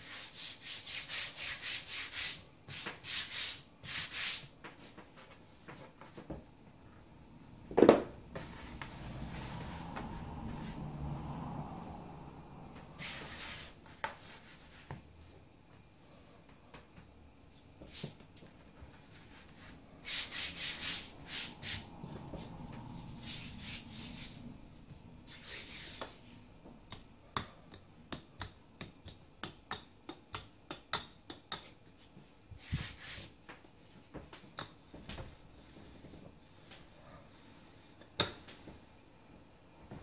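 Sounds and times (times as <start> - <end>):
hands rubbing dough: 17.4 - 26.4
rolling pin clicking on dough: 26.9 - 31.8.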